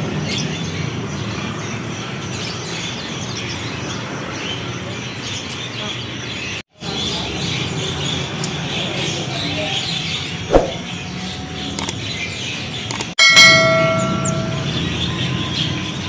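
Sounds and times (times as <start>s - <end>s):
sharp mouse click: 12.9s - 13.1s
bell-like notification chime: 13.2s - 15.0s.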